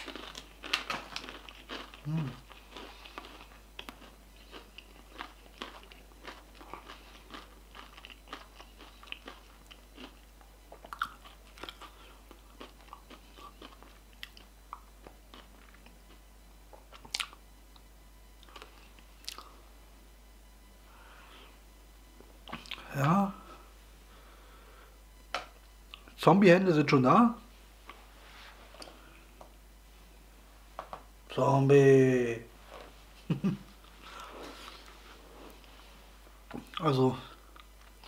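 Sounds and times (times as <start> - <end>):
crunching and chewing chips: 0.0 - 16.2, 16.8 - 17.4, 18.4 - 19.6
low hum from person: 0.0 - 38.0.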